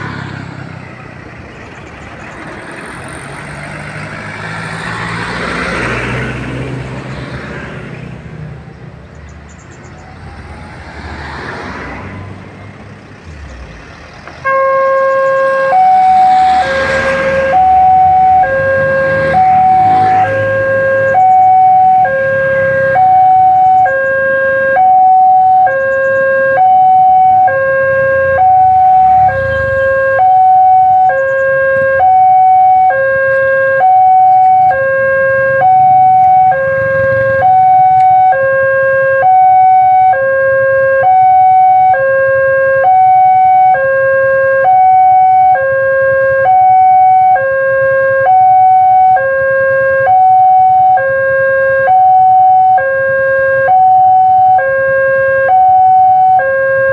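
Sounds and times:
level crossing two-tone alarm: 0:14.5 - 0:56.9.

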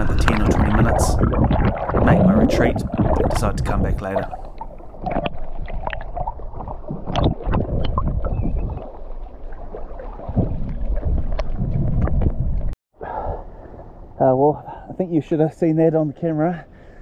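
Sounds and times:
sea water sloshing and rumbling: 0:00.0 - 0:12.8.

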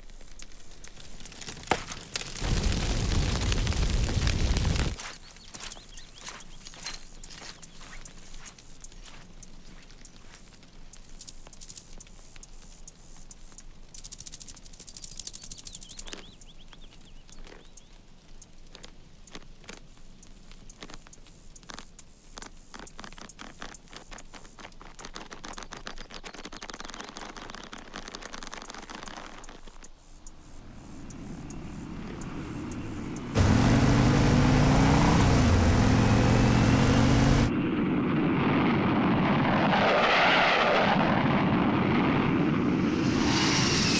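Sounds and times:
rustling: 0:00.0 - 0:12.0.

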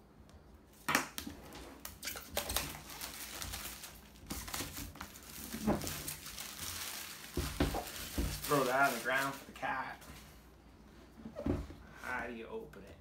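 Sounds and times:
plastic shrink wrap crinkling: 0:01.8 - 0:09.7.

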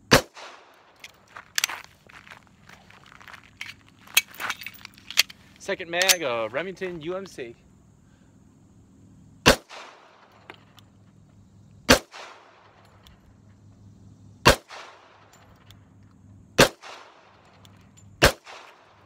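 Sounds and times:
pistol shots with echo: 0:00.1 - 0:00.7, 0:09.4 - 0:10.3, 0:11.9 - 0:12.8, 0:14.4 - 0:15.3, 0:16.6 - 0:17.4, 0:18.2 - 0:19.0.

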